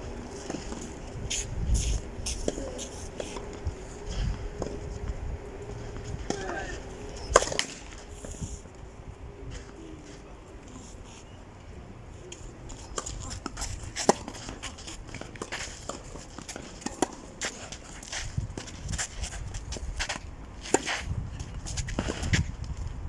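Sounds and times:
tennis balls struck by rackets: 0:00.1 - 0:08.1, 0:12.7 - 0:19.1.

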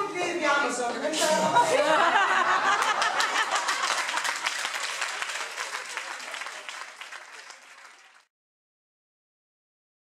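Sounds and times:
audience applauding: 0:02.2 - 0:08.3.

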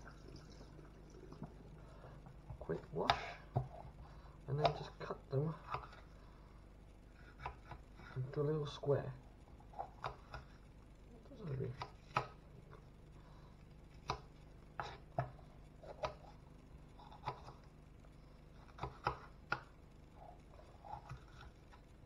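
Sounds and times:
knife chopping on plastic board: 0:05.6 - 0:06.0, 0:07.3 - 0:07.9, 0:09.8 - 0:10.5, 0:11.8 - 0:12.4, 0:14.0 - 0:16.2, 0:18.7 - 0:19.7.

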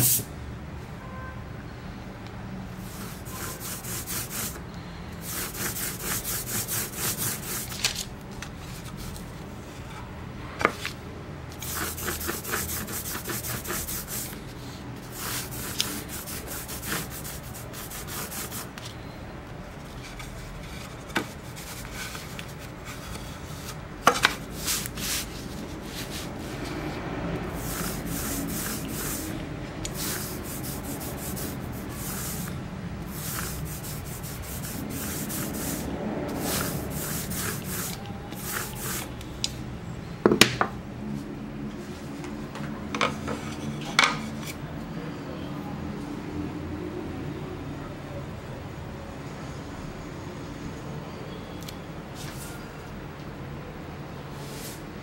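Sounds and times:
rubber roller rubbing on wood: 0:02.8 - 0:04.6, 0:05.2 - 0:08.0, 0:11.6 - 0:14.4, 0:15.0 - 0:18.7, 0:20.1 - 0:26.9, 0:27.5 - 0:29.4, 0:30.0 - 0:39.1.

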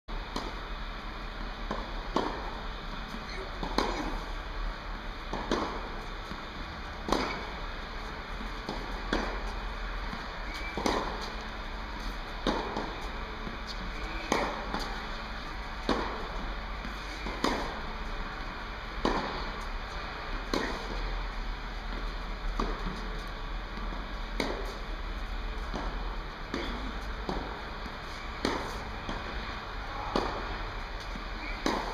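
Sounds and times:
tennis racket striking ball: 0:01.6 - 0:02.5, 0:03.5 - 0:04.2, 0:05.3 - 0:06.4, 0:07.0 - 0:11.4, 0:12.0 - 0:13.1, 0:13.7 - 0:15.1, 0:15.7 - 0:17.8, 0:19.0 - 0:19.6, 0:20.4 - 0:21.0, 0:23.8 - 0:24.8, 0:25.6 - 0:31.9.

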